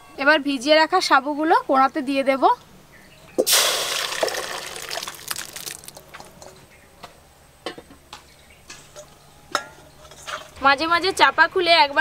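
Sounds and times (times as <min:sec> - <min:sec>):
water and pearls pouring into wok: 0:03.5 - 0:06.0.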